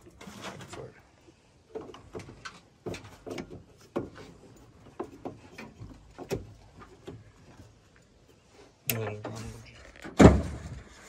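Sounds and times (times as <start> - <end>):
irregular knocks and clicks: 1.7 - 7.3
low thud: 10.2 - 10.8.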